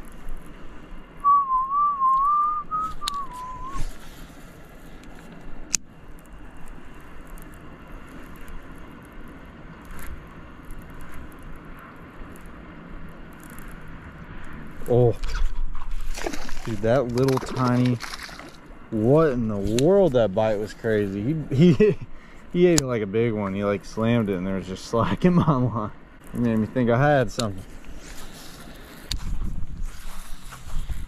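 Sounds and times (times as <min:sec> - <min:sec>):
person whistling a wavering tune: 0:01.2 - 0:03.9
sharp click: 0:03.0 - 0:03.4.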